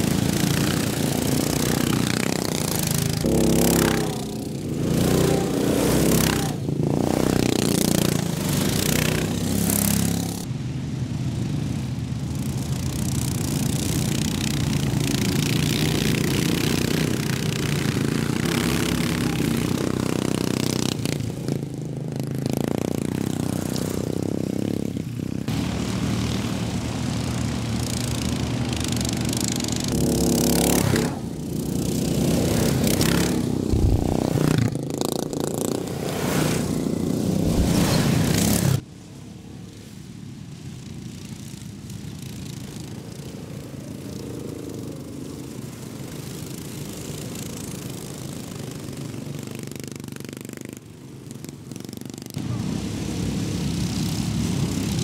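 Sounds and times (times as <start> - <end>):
lawn mower engines racing past: 0.0 - 55.0.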